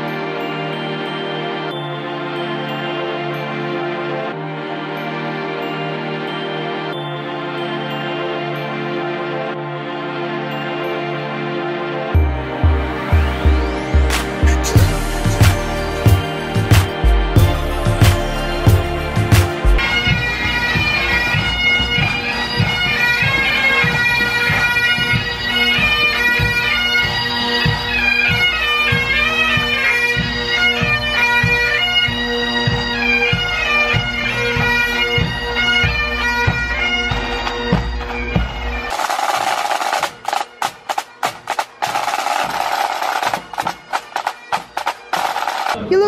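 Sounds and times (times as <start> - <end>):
bagpipes playing melody: 0.0 - 46.0
marching drums beating: 12.2 - 46.0.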